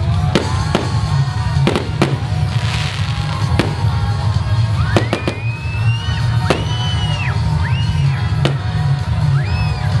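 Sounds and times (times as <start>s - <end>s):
loud music: 0.0s - 10.0s
fireworks bangs: 0.2s - 7.2s, 8.4s - 8.8s.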